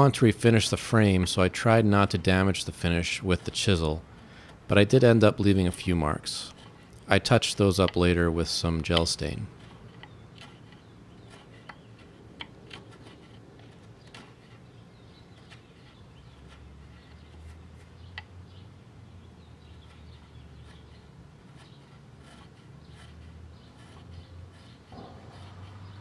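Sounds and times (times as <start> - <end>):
chisel scraping wood: 6.4 - 18.3, 19.6 - 26.0.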